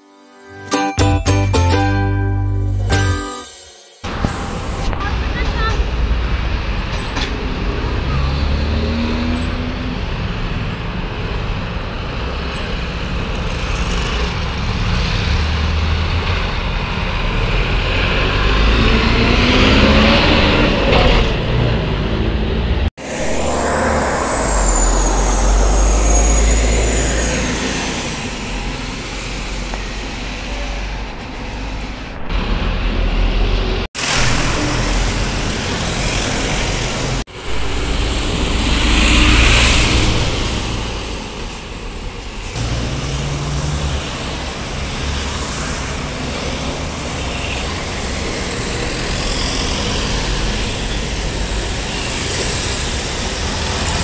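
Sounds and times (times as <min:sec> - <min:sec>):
diesel buses pulling away: 0:04.0 - 0:54.0
street traffic passing: 0:04.0 - 0:54.0.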